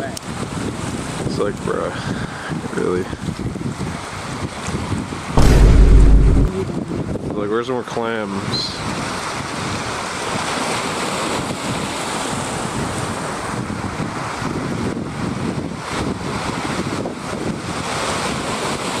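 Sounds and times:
wind buffeting microphone: 2.6 - 7.3.

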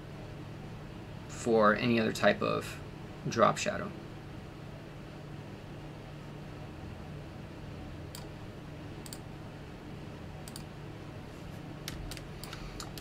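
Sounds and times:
low steady hum: 0.0 - 13.0
computer mouse clicking: 9.0 - 9.2, 10.4 - 10.7, 11.9 - 13.0.

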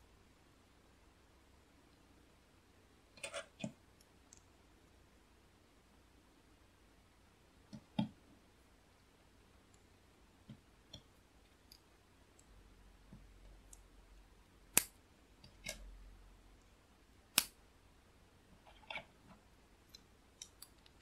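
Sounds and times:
sharp plastic snaps: 14.7 - 15.9, 17.3 - 17.6.

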